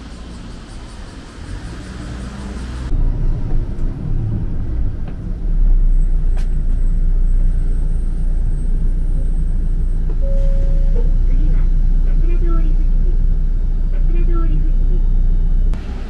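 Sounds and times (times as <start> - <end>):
bus engine rumble: 0.0 - 16.0
short steady tone: 10.2 - 11.1.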